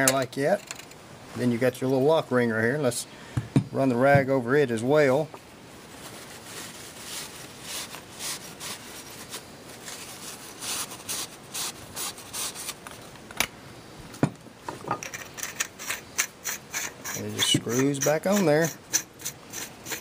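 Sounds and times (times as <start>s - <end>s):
rag wiping metal ring: 15.2s - 20.0s.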